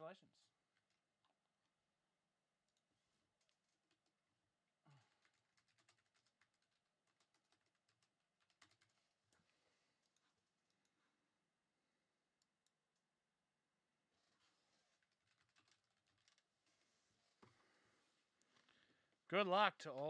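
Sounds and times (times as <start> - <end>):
keyboard typing clicks: 5.2 - 9.0.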